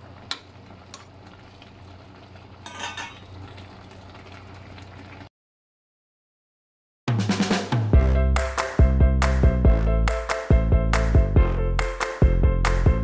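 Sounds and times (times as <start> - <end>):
soup simmering: 0.0 - 5.3
metal ladle clattering against pot: 2.6 - 3.3.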